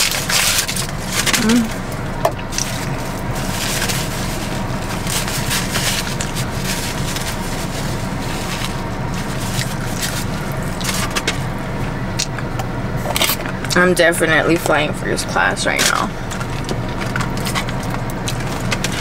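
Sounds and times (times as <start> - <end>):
crunchy crackles: 0.0 - 13.7, 15.7 - 19.0
steady low hum: 0.0 - 19.0
chewing food: 4.9 - 11.3.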